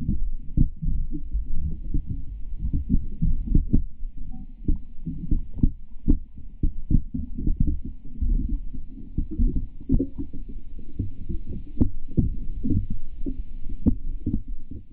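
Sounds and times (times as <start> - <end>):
muffled underwater rumble: 0.0 - 14.9.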